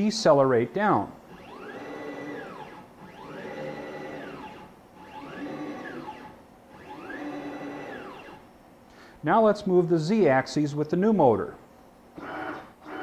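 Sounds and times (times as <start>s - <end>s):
stepper motor whine: 1.3s - 8.5s.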